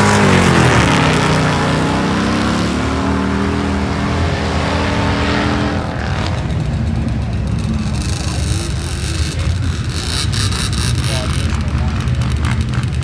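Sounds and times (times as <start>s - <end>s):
racing engines running hard: 0.0s - 13.0s.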